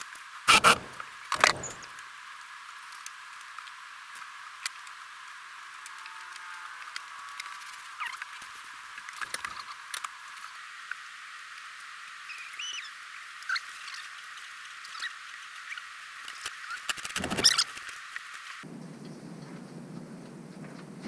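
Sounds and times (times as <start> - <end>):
short squeaks: 0.5 - 1.9, 16.7 - 17.9
refrigerator knocking and scraping: 0.6 - 1.9.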